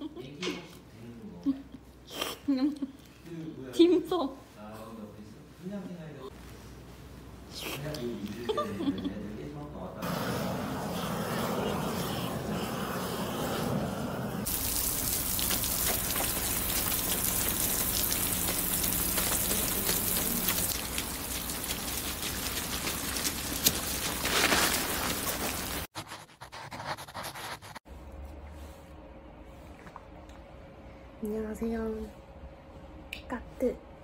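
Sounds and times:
water gushing: 10.0 - 25.9.

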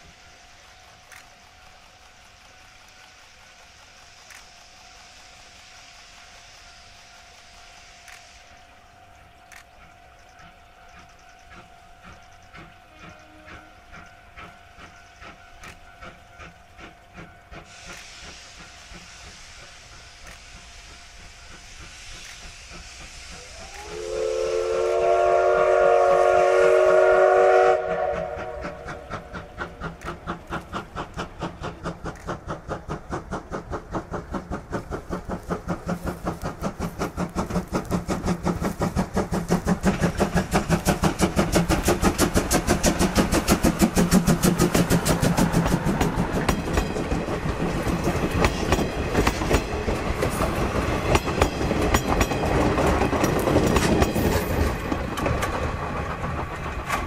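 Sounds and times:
locomotive exhaust chuffs: 0.0 - 57.0
steam hissing: 0.0 - 57.0
steam whistle blast: 17.7 - 29.4.

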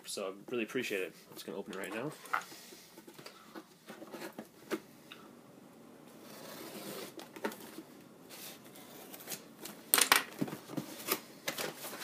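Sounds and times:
cardboard parcel rustling and scraping: 2.0 - 4.9, 6.1 - 9.8, 10.4 - 12.0
cardboard tearing: 6.2 - 7.3.

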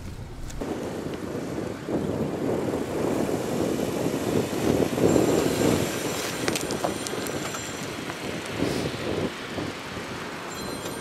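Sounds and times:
tyre and dirt noise: 0.0 - 3.4, 4.0 - 9.9
car engine under light load: 0.0 - 11.0.

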